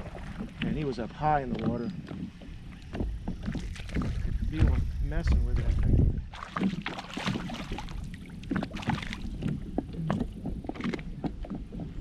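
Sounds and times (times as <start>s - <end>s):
water splashing: 0.0s - 12.0s.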